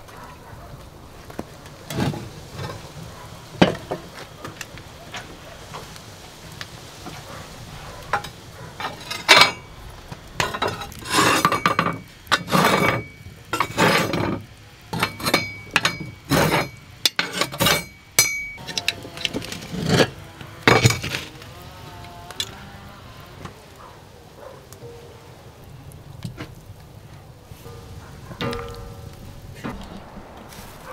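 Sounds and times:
kitchenware clinking and knocking: 10.4 - 14.4, 15.0 - 18.9, 27.7 - 29.8.

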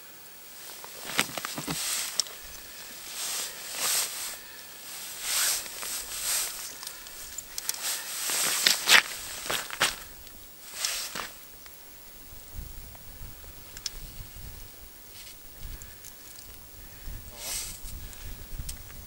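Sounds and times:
padded jacket rustling: 0.5 - 11.6
sharp clicks: 5.6 - 7.8.

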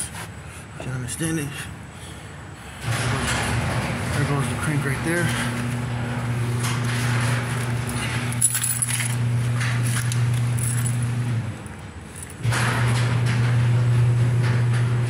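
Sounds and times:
garage door opener humming: 2.6 - 15.0
metallic clinks and rattles: 7.8 - 12.5.

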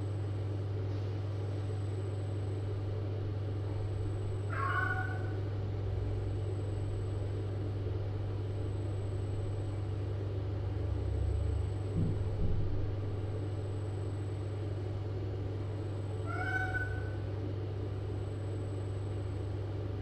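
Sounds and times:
steady low hum: 0.0 - 20.0
cat meowing: 4.5 - 5.4, 16.3 - 17.2.

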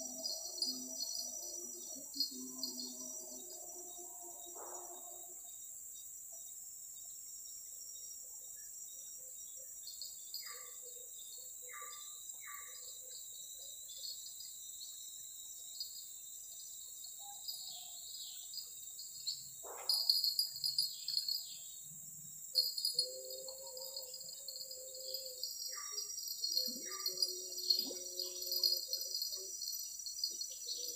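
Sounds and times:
insects shrilling: 0.0 - 5.3, 22.5 - 30.9
pulsing insect trill: 0.0 - 30.9.

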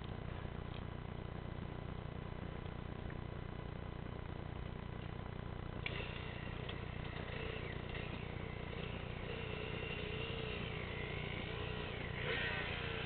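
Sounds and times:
steady low rumble: 0.0 - 13.0
distant dirt bike engine revving: 5.8 - 13.0.

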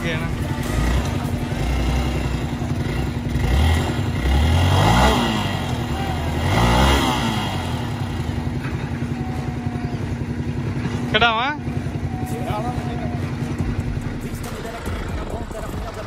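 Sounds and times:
motorcycle engine revving: 0.0 - 16.0.

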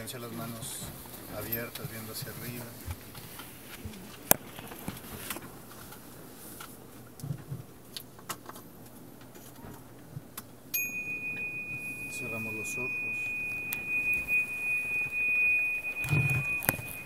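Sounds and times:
low steady hum: 8.7 - 17.0
high ringing tone: 10.7 - 17.0
phone handling noise: 16.0 - 17.0.

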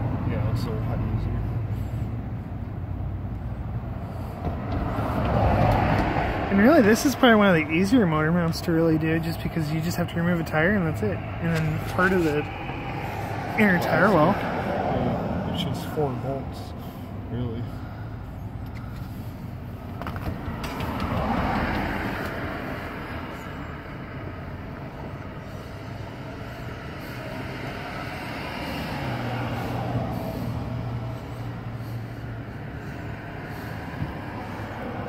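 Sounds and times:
heavy vehicle engine drone: 0.0 - 35.0
vehicle passing: 0.0 - 35.0.

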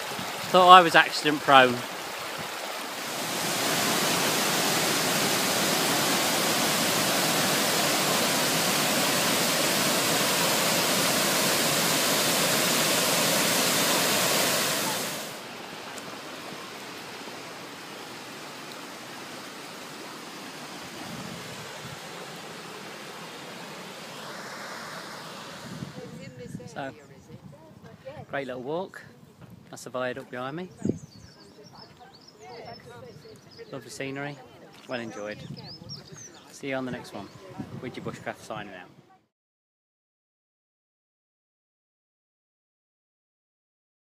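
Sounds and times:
water rushing over weir: 0.0 - 26.3
river flowing: 0.0 - 26.4.

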